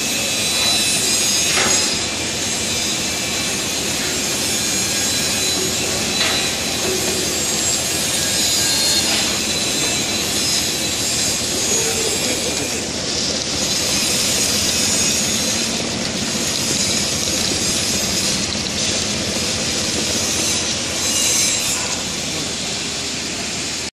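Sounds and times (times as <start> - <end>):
chopping machine running: 0.0 - 23.9
hiss of pouring pieces: 2.5 - 20.7.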